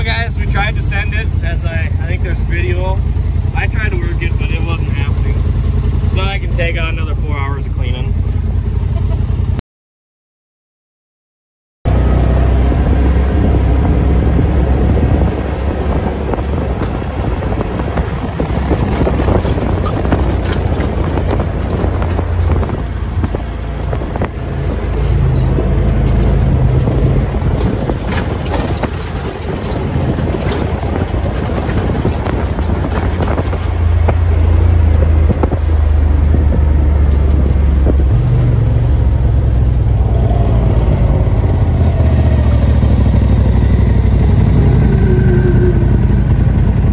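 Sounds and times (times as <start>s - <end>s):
off-road vehicle engine: 0.0s - 9.6s, 11.9s - 46.9s
wind noise: 11.9s - 46.9s
tyre noise: 12.0s - 43.4s
knocks over bumps: 14.9s - 38.6s.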